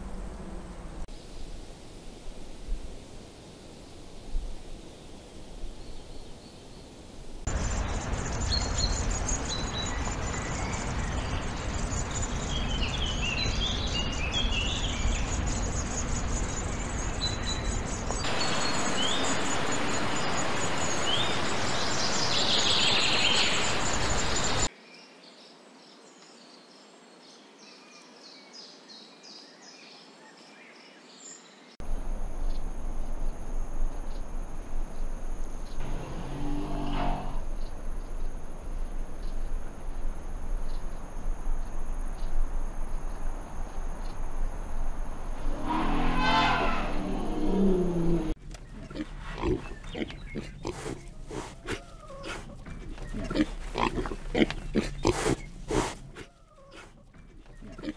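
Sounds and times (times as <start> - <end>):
birds chirping: 3.7 - 24.7, 31.8 - 57.9
steady rushing noise: 6.9 - 24.7.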